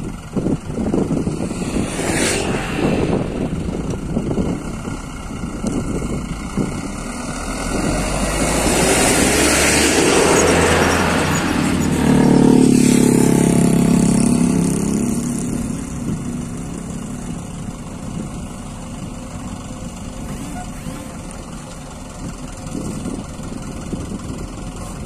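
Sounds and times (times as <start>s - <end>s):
vehicle driving past: 0.7s - 5.0s.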